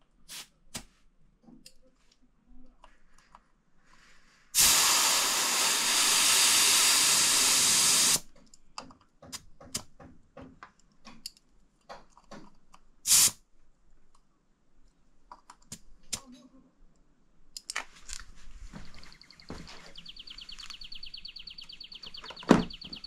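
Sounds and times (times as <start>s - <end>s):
air hissing from tyre valve: 0.3s - 0.5s, 4.6s - 8.2s, 13.1s - 13.4s
pressure gauge hiss: 4.6s - 8.3s, 13.1s - 13.4s.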